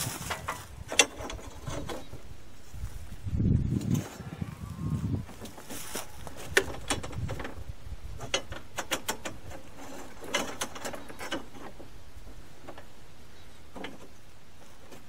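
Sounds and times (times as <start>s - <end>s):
metallic clicks and rattles: 0.2s - 2.2s, 6.4s - 11.9s.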